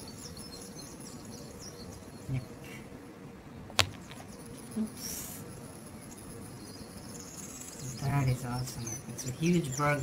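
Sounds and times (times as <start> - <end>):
sharp plastic click: 3.8 - 4.2.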